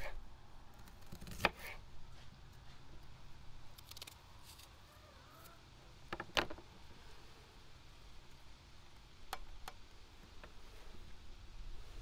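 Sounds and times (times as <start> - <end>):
faint low outdoor rumble: 0.0 - 12.0
knife peeling vegetables: 0.8 - 2.8.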